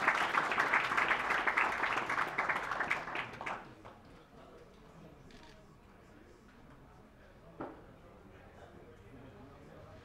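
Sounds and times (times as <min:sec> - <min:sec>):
audience applauding: 0:00.0 - 0:03.7.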